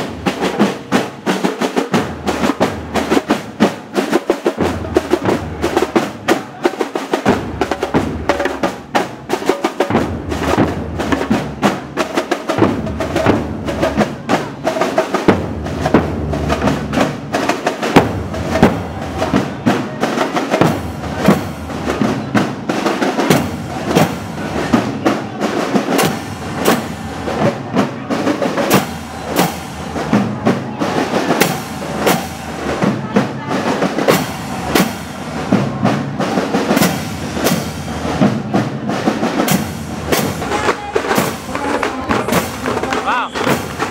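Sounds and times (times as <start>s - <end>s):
snare drums marching cadence: 0.0s - 43.9s
bass drums: 7.2s - 43.9s.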